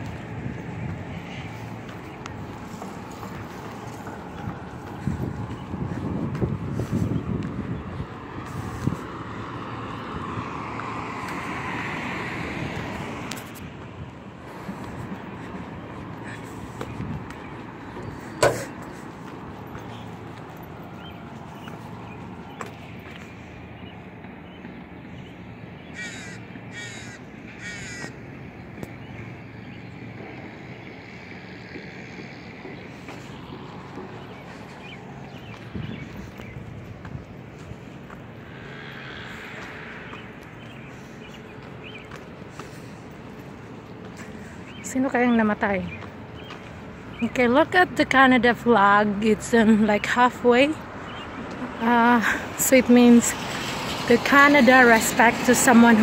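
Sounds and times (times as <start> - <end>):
distant engine droning: 0.0 - 56.0
low outdoor hum: 0.0 - 56.0
low rumble of traffic: 0.0 - 56.0
crow cawing: 25.9 - 28.2.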